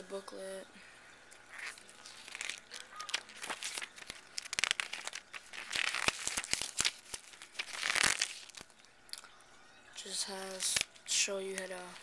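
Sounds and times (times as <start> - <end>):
paper pages rustling: 1.5 - 8.8, 10.3 - 12.0.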